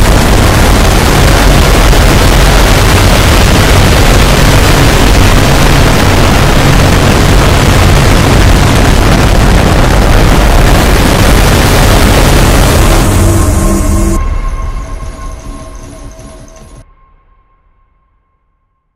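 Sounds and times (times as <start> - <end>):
harsh distorted noise: 0.0 - 16.8
low bass drone: 0.0 - 17.7.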